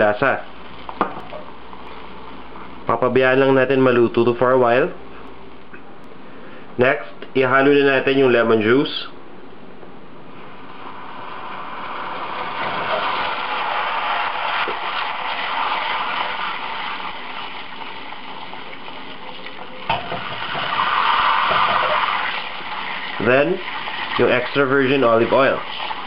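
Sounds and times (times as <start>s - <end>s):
butter sizzling and bubbling: 10.4s - 26.0s.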